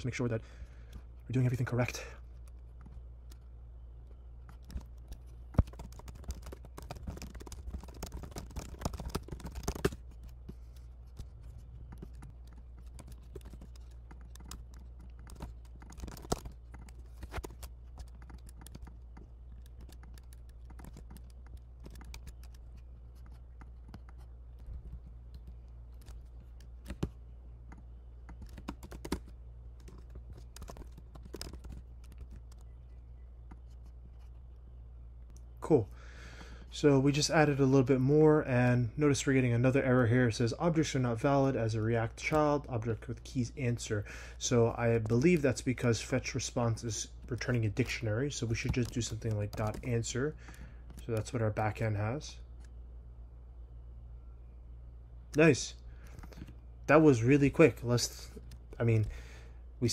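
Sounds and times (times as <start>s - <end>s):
steady low hum: 0.0s - 59.9s
computer keyboard typing: 4.4s - 10.5s, 11.1s - 24.7s, 25.3s - 32.8s, 44.7s - 51.4s.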